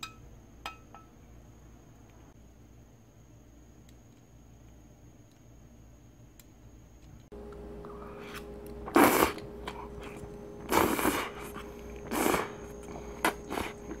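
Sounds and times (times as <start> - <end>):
person slurping noodles: 7.9 - 14.0.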